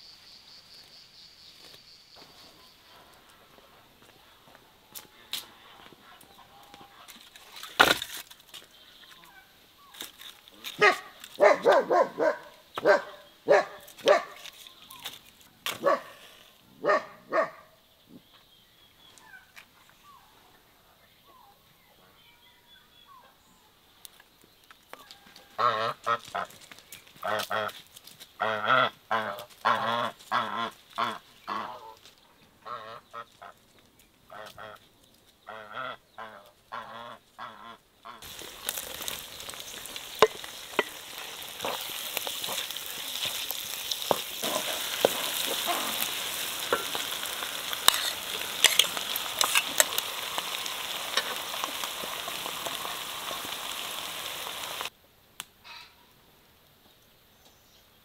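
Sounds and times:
waterfowl calling: 0:25.4 - 0:26.5
wooden spatula stirring: 0:38.2 - 0:50.0
vegetables sizzling in a pan: 0:38.2 - 0:54.9.

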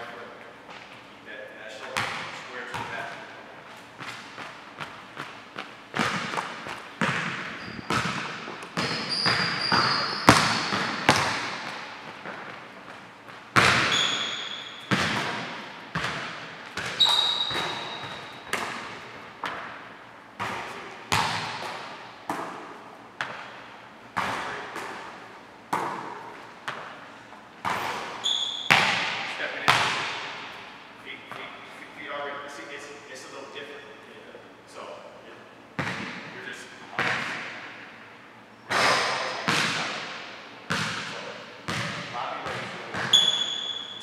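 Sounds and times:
sneaker squeaks: 0:01.8 - 0:23.6, 0:27.6 - 0:31.7, 0:40.7 - 0:44.0
basketball thudding on floor and rim: 0:04.0 - 0:12.6, 0:13.3 - 0:19.8, 0:20.4 - 0:23.5, 0:24.2 - 0:26.9, 0:27.6 - 0:30.6, 0:35.8 - 0:36.3, 0:37.0 - 0:37.6, 0:38.7 - 0:43.7.

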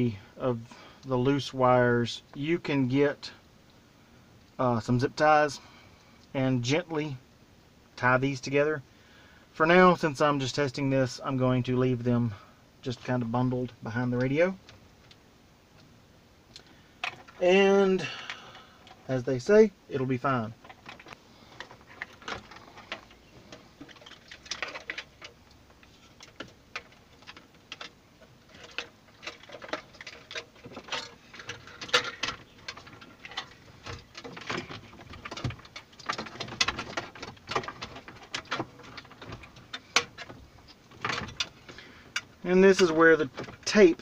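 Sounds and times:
wire harness rustling: 0:20.4 - 0:44.0.

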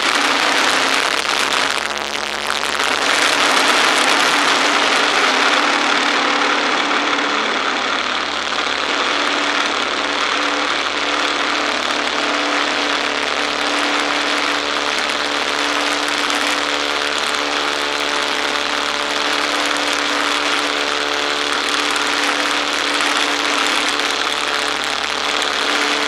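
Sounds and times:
biplane engine and propeller: 0:02.3 - 0:26.0.

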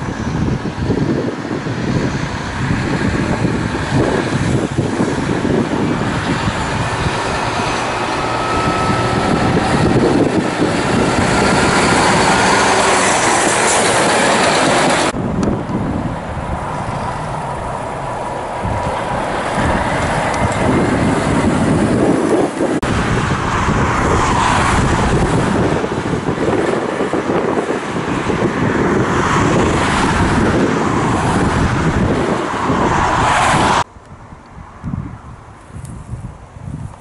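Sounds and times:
dump truck diesel engine and tyres: 0:00.0 - 0:37.0
truck driving past: 0:02.3 - 0:25.7.

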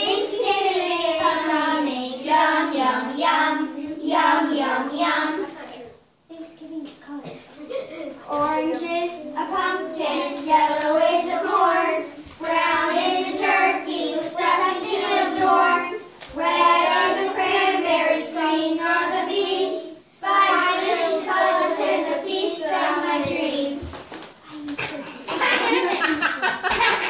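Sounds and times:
children singing: 0:00.0 - 0:05.5, 0:08.4 - 0:23.8.

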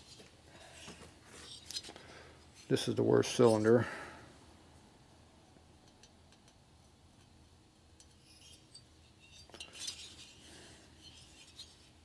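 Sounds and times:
scraping on metal cylinder: 0:08.0 - 0:11.9.

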